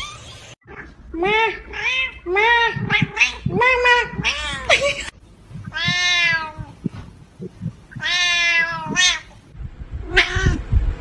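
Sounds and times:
cat meowing: 0.6 - 6.8, 7.9 - 9.4, 10.1 - 10.6.

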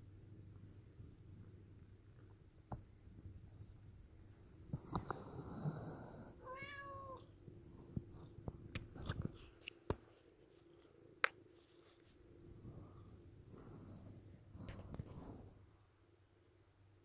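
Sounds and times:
cat meowing: 6.4 - 7.3.

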